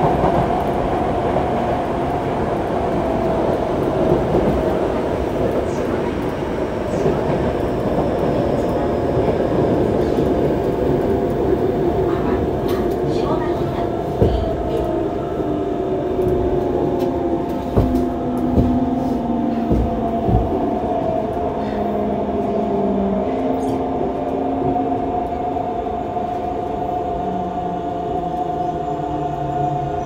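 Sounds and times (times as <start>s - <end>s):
thuds: 17.7s - 18.9s, 19.6s - 20.6s.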